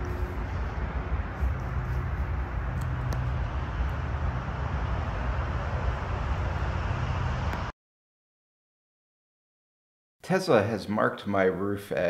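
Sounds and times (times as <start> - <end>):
low rumble: 0.0 - 7.7.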